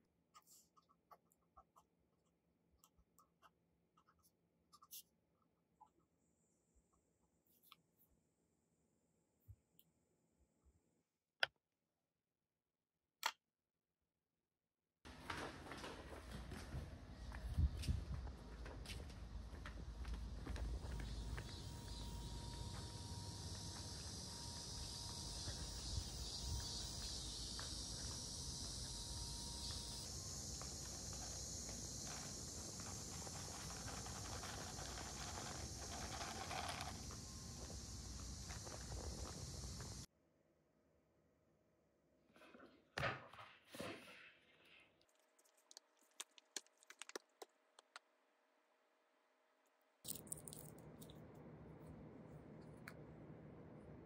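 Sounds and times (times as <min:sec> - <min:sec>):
steady room hum: 0:15.1 - 0:40.1, 0:48.2 - 0:54.0
cicadas buzzing: 0:20.0 - 0:40.1.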